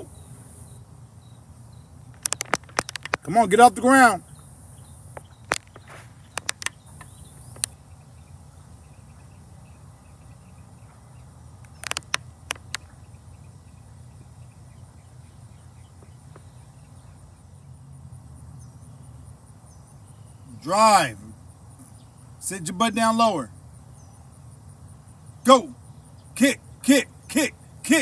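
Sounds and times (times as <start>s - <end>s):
sharp clicks: 2.1s - 3.4s, 5.2s - 7.8s, 11.6s - 13.0s.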